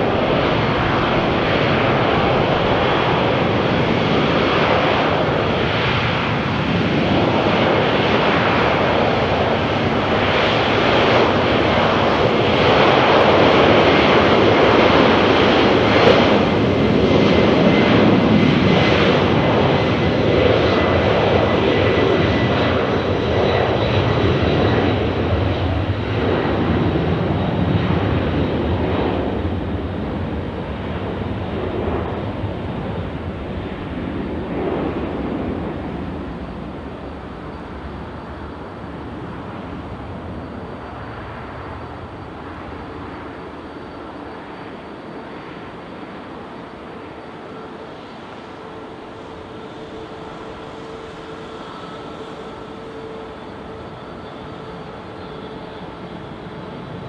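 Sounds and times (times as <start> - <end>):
jet airliner passing: 0.0 - 57.0
faint high whine: 19.4 - 57.0.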